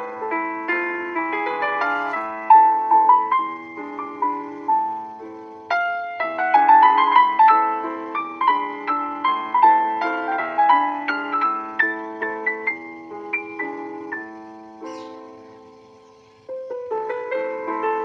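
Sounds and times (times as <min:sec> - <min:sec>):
piano melody of single notes: 0:00.0 - 0:18.0.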